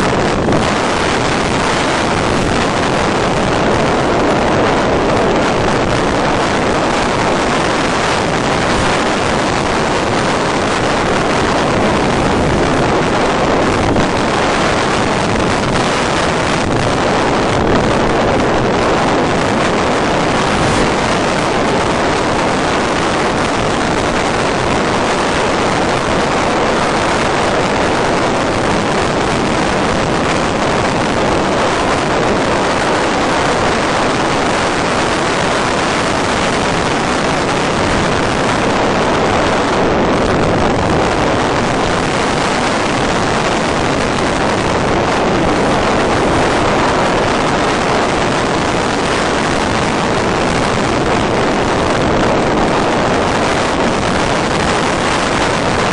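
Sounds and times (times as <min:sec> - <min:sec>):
airflow rushing over microphone: 0:00.0 - 0:55.9.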